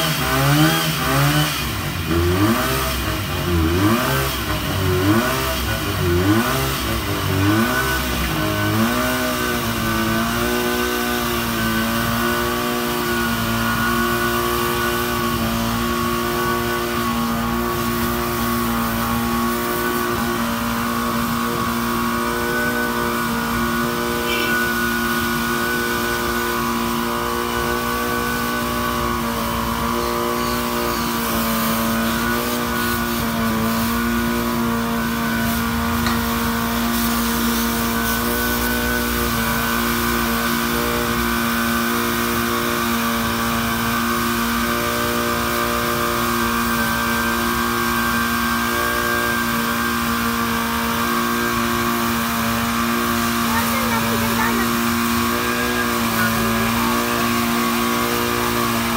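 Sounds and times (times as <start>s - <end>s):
fire pump engine running: 0.0s - 58.9s.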